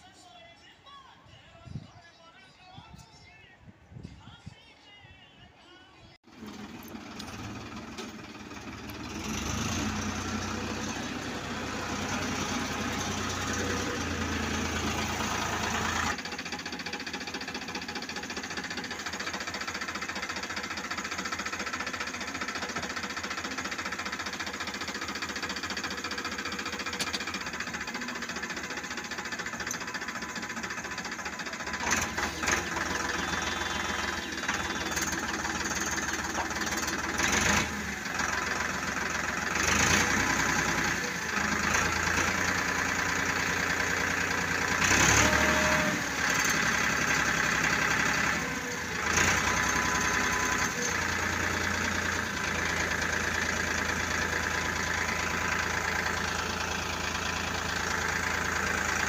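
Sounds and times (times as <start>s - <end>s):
tractor diesel engine idling: 6.3s - 59.0s.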